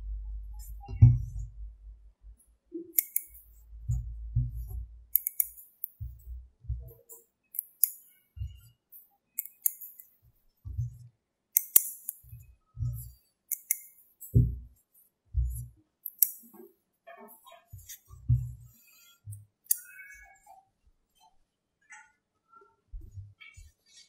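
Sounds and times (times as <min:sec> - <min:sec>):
soft low thuds: 0:00.0 - 0:02.4, 0:03.6 - 0:05.1, 0:06.0 - 0:07.0, 0:14.4 - 0:15.8, 0:17.8 - 0:18.7
magnetic balls clicking: 0:02.9 - 0:06.3, 0:07.5 - 0:08.6, 0:09.4 - 0:10.1, 0:11.6 - 0:14.6, 0:15.4 - 0:16.6.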